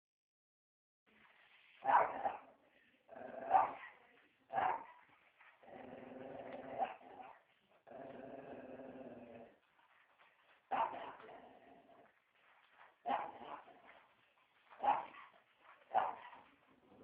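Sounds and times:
dog barking: 0:01.8 - 0:02.6, 0:03.5 - 0:05.0, 0:10.7 - 0:11.3, 0:13.0 - 0:13.9, 0:14.7 - 0:16.5
dog growling: 0:03.1 - 0:03.8, 0:05.6 - 0:09.6, 0:10.8 - 0:12.1.

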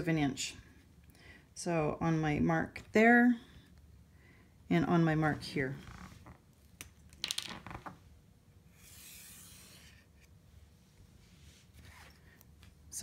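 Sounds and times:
soft rub on cutting mat: 0:08.8 - 0:12.8.

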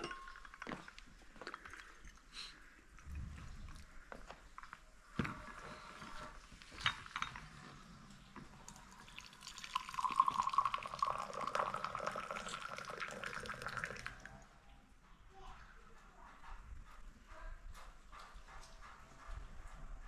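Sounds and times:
glass clinking on saucer: 0:00.0 - 0:00.6, 0:06.8 - 0:07.5
liquid pouring into glass: 0:00.0 - 0:02.2, 0:08.6 - 0:14.4.

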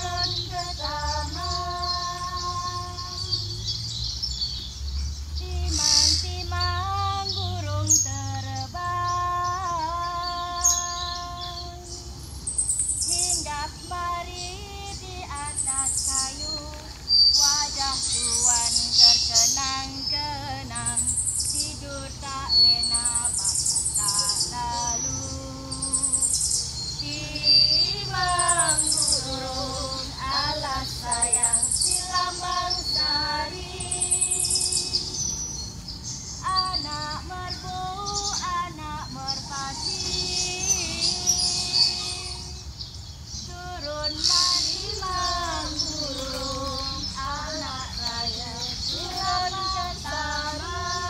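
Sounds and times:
high wordless singing voice: 0:00.0 - 0:03.7, 0:05.4 - 0:35.4, 0:36.3 - 0:42.8, 0:43.4 - 0:51.0
high chirping trills: 0:00.0 - 0:51.0
rapid high chirping: 0:15.3 - 0:37.1.

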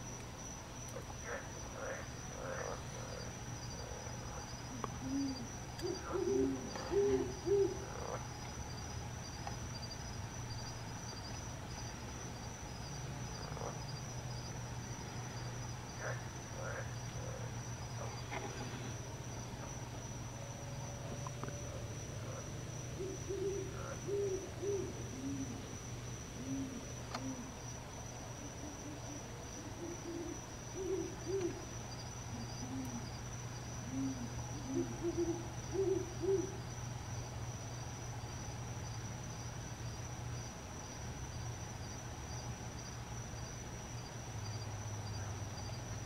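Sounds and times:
owl hooting: 0:04.7 - 0:08.0, 0:23.0 - 0:25.6, 0:26.4 - 0:27.5, 0:28.4 - 0:31.6, 0:33.8 - 0:36.6.

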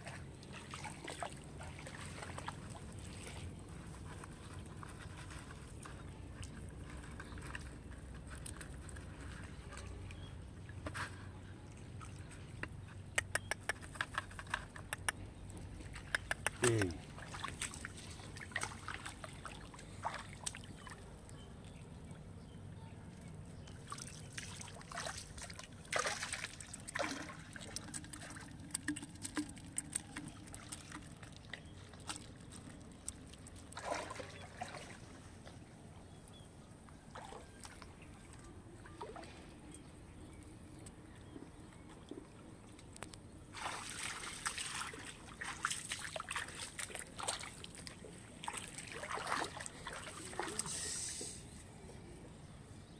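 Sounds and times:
water trickling and sloshing: 0:00.0 - 0:52.9
net splashing in water: 0:23.9 - 0:32.3, 0:33.6 - 0:35.1, 0:43.5 - 0:50.9.

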